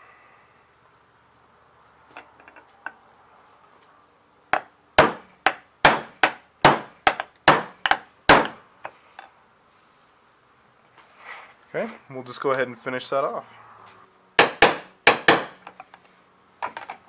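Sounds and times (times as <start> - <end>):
hammer striking metal punch: 4.5 - 8.6, 14.4 - 15.7.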